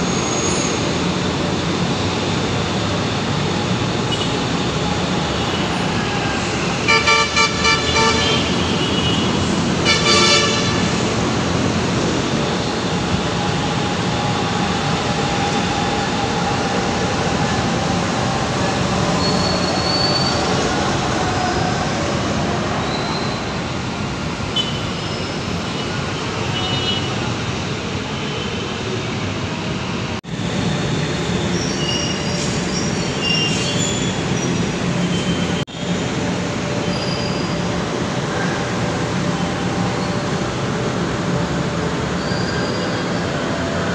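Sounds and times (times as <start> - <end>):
passing train: 0.0 - 43.9
road traffic: 0.0 - 43.9
high-pitched wheel squeals: 19.1 - 20.7, 31.2 - 35.6, 36.8 - 37.8, 42.0 - 43.6.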